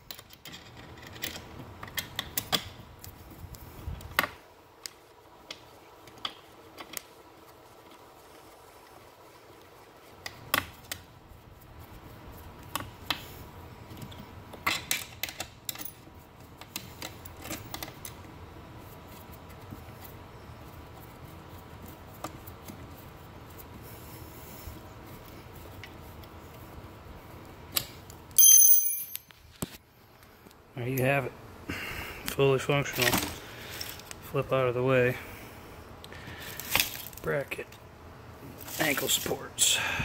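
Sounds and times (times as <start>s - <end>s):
hand tool clicking on metal hardware: 28.4s - 29.3s.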